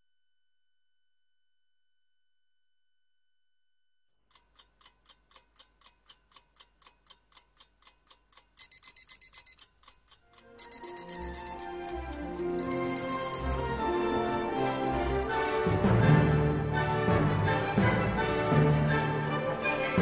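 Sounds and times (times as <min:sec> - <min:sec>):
clock ticking: 0:04.3 - 0:13.7, 0:14.6 - 0:15.6
electronic alarm beeping: 0:08.6 - 0:09.6, 0:10.6 - 0:11.6, 0:12.6 - 0:13.6, 0:14.6 - 0:15.6.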